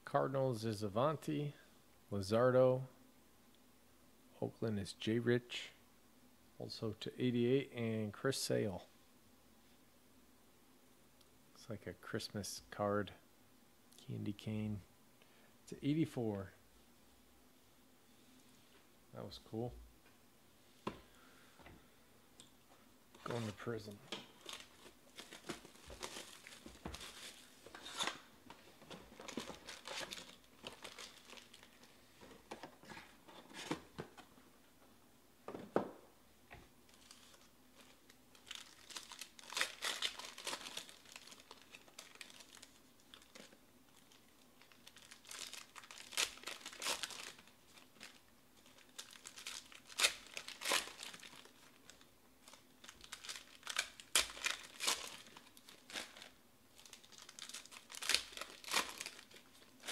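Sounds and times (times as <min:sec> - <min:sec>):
foil wrappers crinkling and tearing: 0:24.3 - 0:28.3, 0:28.9 - 0:32.0, 0:36.9 - 0:59.9.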